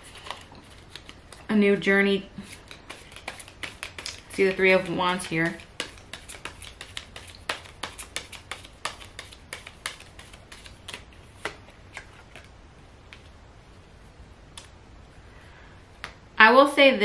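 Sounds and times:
cards being shuffled: 0.0 - 1.5, 2.4 - 13.3.

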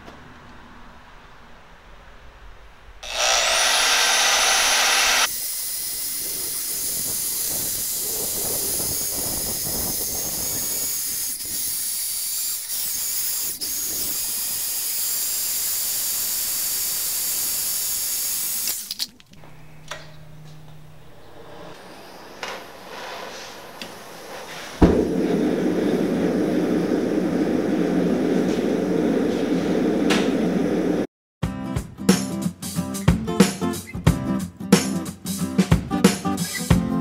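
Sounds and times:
band saw cutting steel bar: 3.0 - 18.9.

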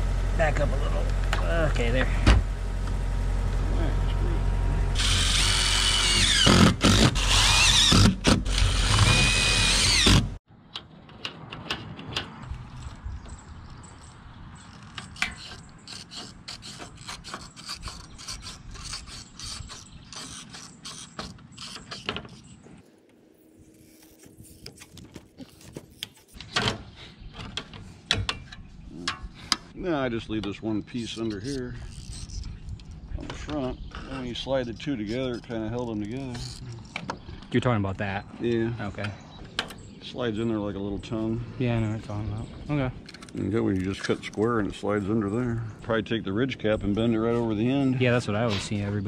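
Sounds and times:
cordless drill whining: 5.0 - 10.4.

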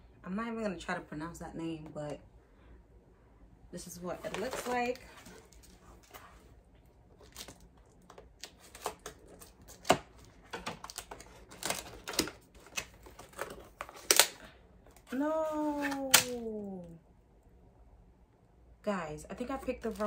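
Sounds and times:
cardboard flaps rustling: 4.2 - 6.4.

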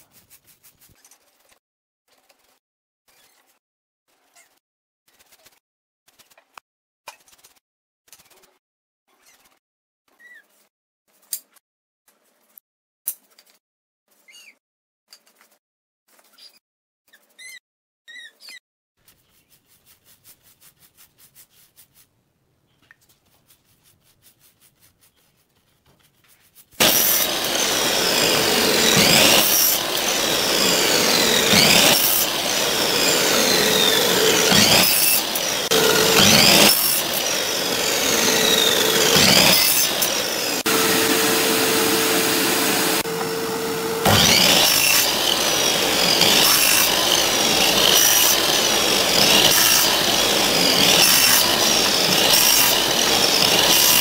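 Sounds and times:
faint brush strokes: 19.1 - 22.2, 22.9 - 26.8
saw cutting wood: 26.8 - 54.0.

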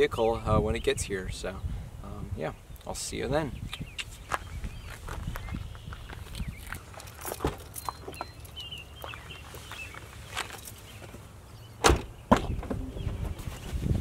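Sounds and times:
scuffs and clicks on gravel: 4.3 - 11.2
car door shutting: 11.8 - 13.8.

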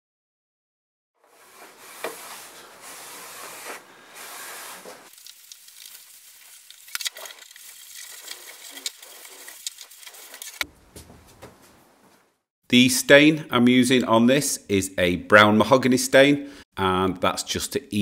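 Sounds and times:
cloth rubbing on wood: 1.2 - 5.1.

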